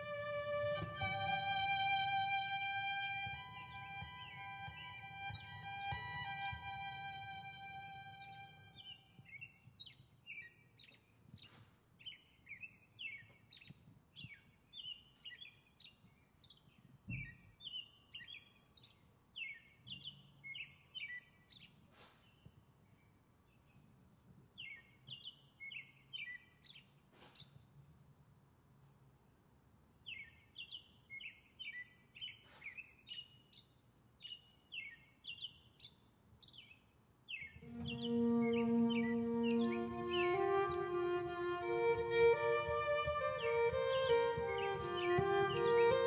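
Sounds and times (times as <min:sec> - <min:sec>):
songbird chirping: 0:00.0 - 0:27.8, 0:30.0 - 0:46.0.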